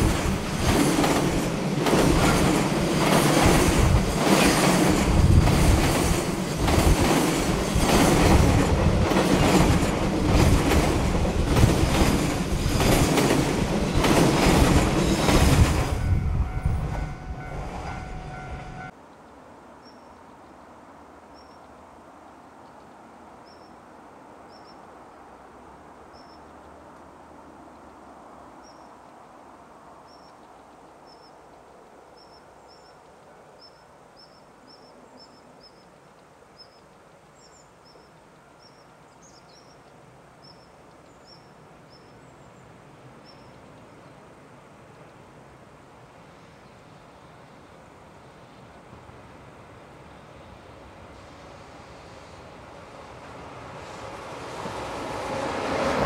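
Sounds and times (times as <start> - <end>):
train wheels clacking over rails: 0.0 - 18.9
faint steady tones: 15.9 - 19.4.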